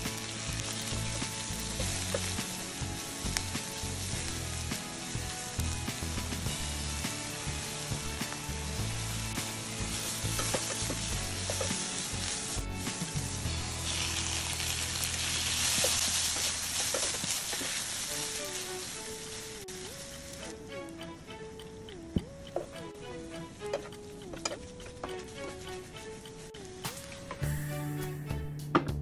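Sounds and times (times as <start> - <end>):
vegetables sizzling in a frying pan: 0.0 - 20.4
metal tongs clicking against pan: 10.2 - 12.0.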